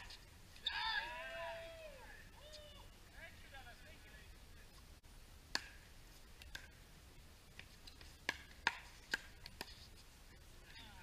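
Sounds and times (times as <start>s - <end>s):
paddles hitting plastic ball: 6.4s - 6.8s, 7.5s - 9.9s.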